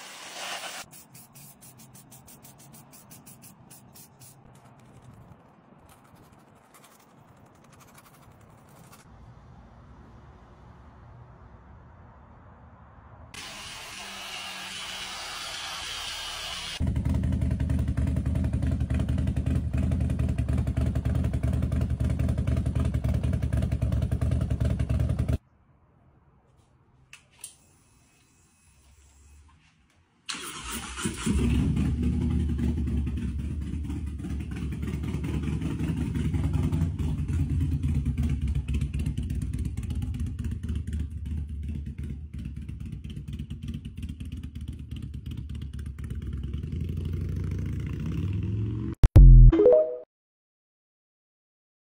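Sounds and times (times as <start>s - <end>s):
motorcycle engine rumbling: 16.8s - 25.4s, 31.4s - 47.2s.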